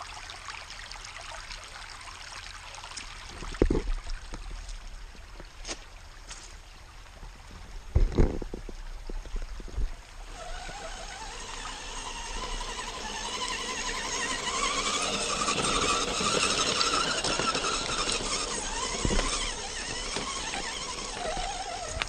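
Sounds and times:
toy truck electric motor whining: 10.3 - 22.0.

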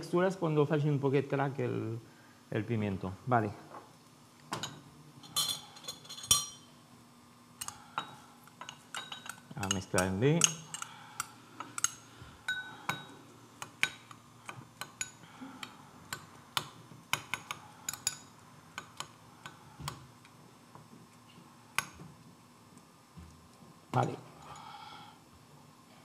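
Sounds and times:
teaspoon clinking against bowl: 8.6 - 10.9.

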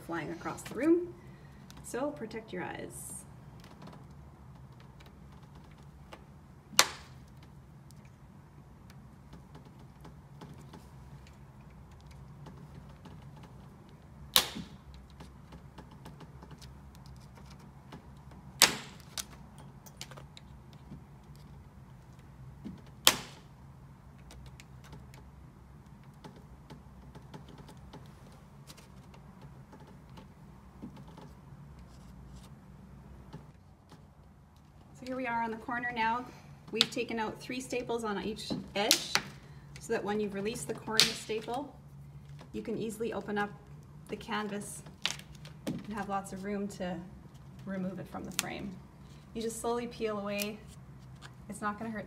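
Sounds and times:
staples snapping free: 14.3 - 15.3, 23.0 - 23.5.

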